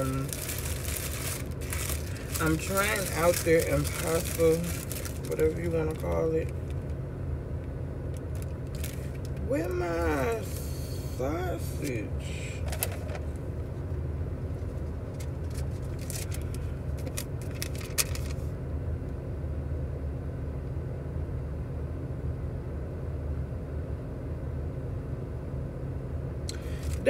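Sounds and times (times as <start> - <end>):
paper bag crackling: 0.0 - 6.8, 8.1 - 9.5, 12.6 - 13.4, 14.5 - 18.4, 26.6 - 27.0
low rumble inside car: 0.0 - 27.0.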